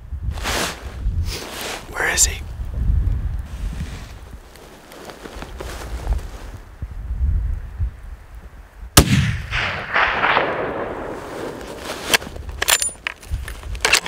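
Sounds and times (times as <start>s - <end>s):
rifle shot echoing: 9.0s - 11.6s.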